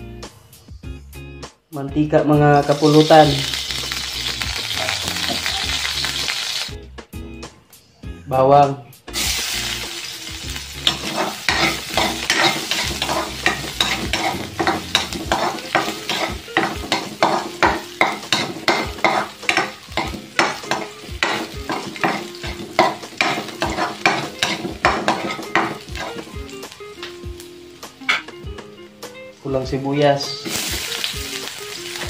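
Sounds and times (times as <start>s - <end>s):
garlic sizzling in hot oil: 2.6s - 6.8s, 9.1s - 29.4s, 30.1s - 32.0s
metal ladle scraping wok: 10.8s - 26.3s.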